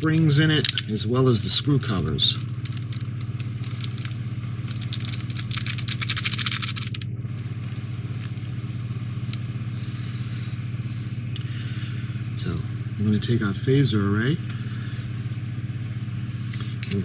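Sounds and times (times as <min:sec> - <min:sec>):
steady low hum: 0:00.0 - 0:17.0
plastic packet crinkling: 0:02.3 - 0:07.0.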